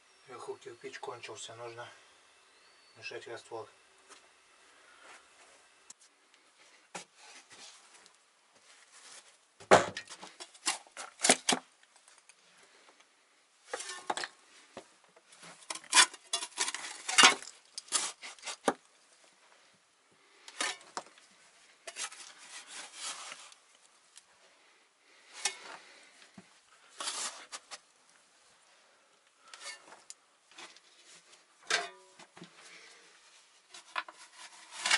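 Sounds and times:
metal tool scraping mortar: 0:13.7 - 0:14.3.

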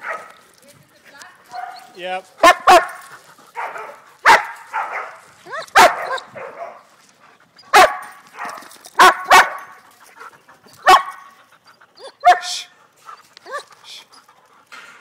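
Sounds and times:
dogs barking: 0:00.0 - 0:00.4, 0:01.5 - 0:06.9, 0:07.7 - 0:09.9, 0:10.8 - 0:11.4, 0:12.0 - 0:12.7
dogs whining and yipping: 0:01.5 - 0:02.1, 0:05.4 - 0:14.5.

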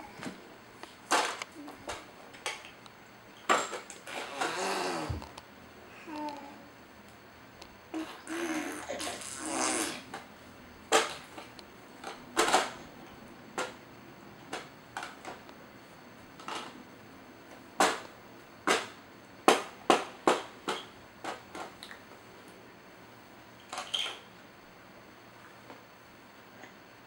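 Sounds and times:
plastic toys knocking and clattering: 0:01.1 - 0:02.6, 0:03.4 - 0:04.0, 0:17.8 - 0:18.0.

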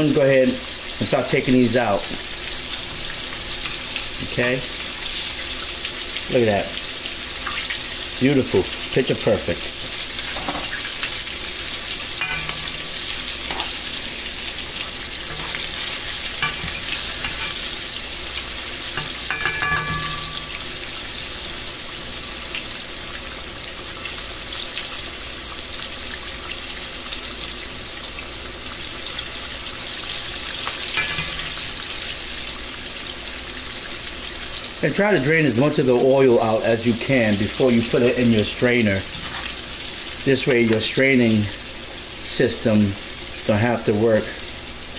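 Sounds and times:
oil bubbling and sizzling: 0:00.0 - 0:44.9
metal tongs clinking: 0:12.2 - 0:13.9, 0:14.7 - 0:17.9, 0:18.9 - 0:20.9, 0:30.6 - 0:31.8.

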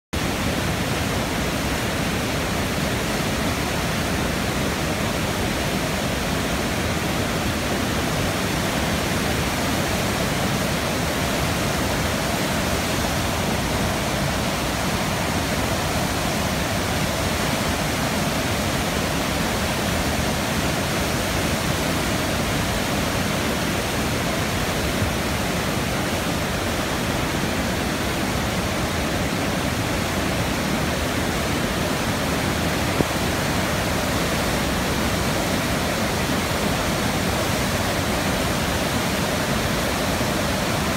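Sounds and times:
river rushing through rapids: 0:00.2 - 0:40.9.

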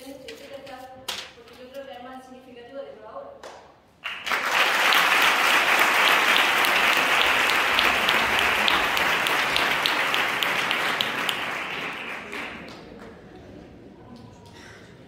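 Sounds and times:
audience applause: 0:04.0 - 0:13.7.

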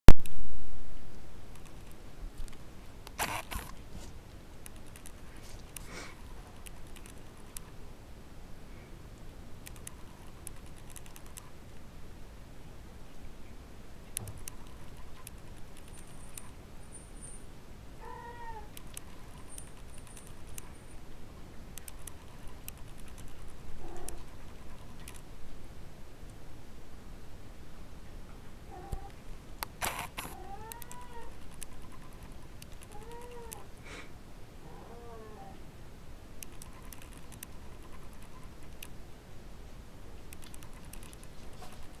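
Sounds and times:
faint clicks: 0:01.5 - 0:03.9, 0:04.6 - 0:07.8, 0:09.6 - 0:11.5, 0:18.6 - 0:20.8, 0:21.7 - 0:25.3, 0:28.9 - 0:33.7, 0:36.4 - 0:39.0, 0:40.3 - 0:42.0
kittens' claws scratching fabric: 0:01.6 - 0:07.8, 0:18.8 - 0:20.8, 0:21.8 - 0:25.3, 0:29.7 - 0:33.6, 0:36.4 - 0:38.9
kitten mewing: 0:18.0 - 0:18.8, 0:29.8 - 0:32.0, 0:32.8 - 0:33.7.

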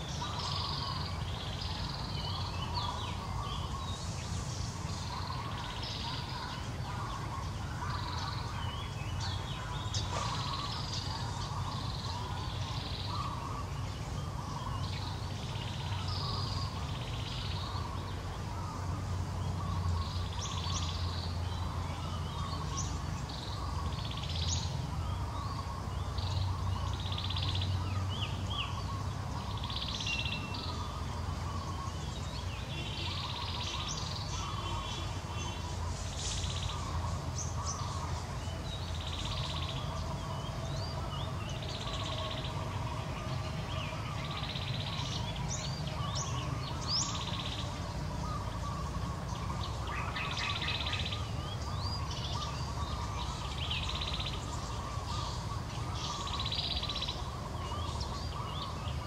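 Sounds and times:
birds chirping: 0:00.0 - 0:59.0
steady low hum: 0:00.0 - 0:59.0.

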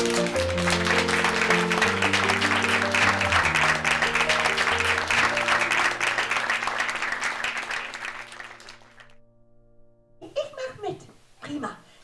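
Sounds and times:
background music with held chords: 0:00.0 - 0:08.5
audience applauding: 0:00.0 - 0:09.2.

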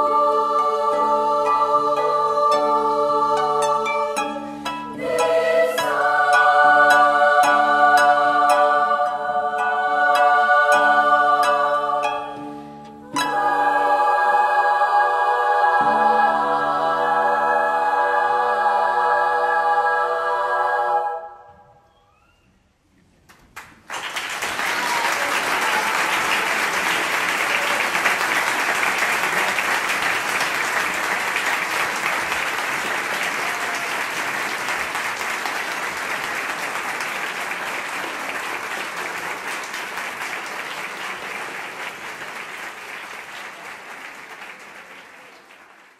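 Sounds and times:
audience applause: 0:23.5 - 0:45.9.

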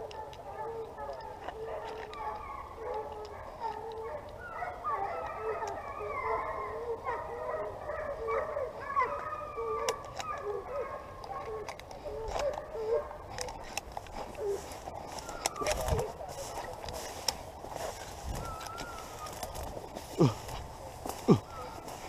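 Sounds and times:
hounds baying and howling: 0:00.0 - 0:22.0.

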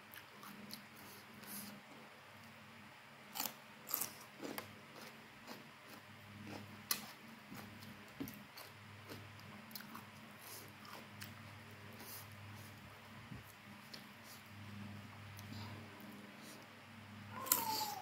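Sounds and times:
faint steady hum: 0:00.0 - 0:18.0
crunchy biting and chewing: 0:03.3 - 0:12.8.

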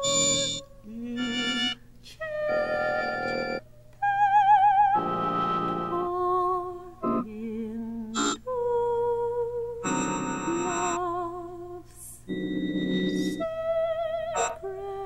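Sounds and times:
soprano singing with vibrato: 0:00.0 - 0:12.3, 0:13.1 - 0:15.0
buzzy synthesized chords: 0:09.8 - 0:11.0, 0:12.3 - 0:13.4.

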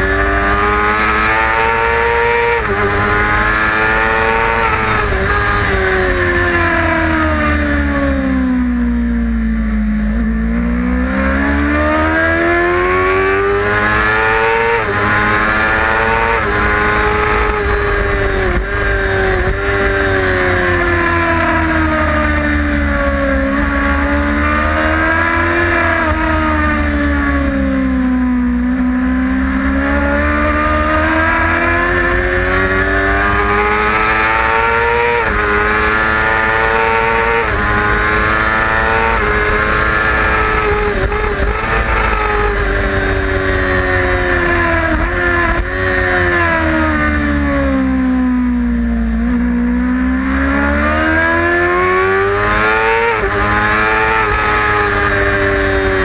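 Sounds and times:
motorcycle engine revving: 0:00.0 - 0:56.0
wind rumble on microphone: 0:16.4 - 0:25.1.

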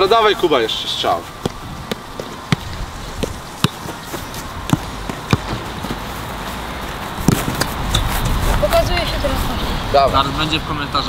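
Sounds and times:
football bouncing on turf: 0:01.3 - 0:06.1, 0:07.2 - 0:08.3.

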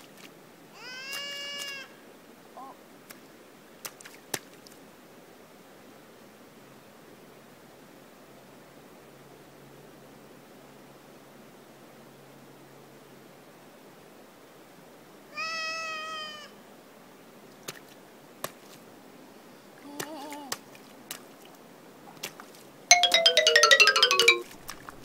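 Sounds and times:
chiming jingle: 0:22.9 - 0:24.4.

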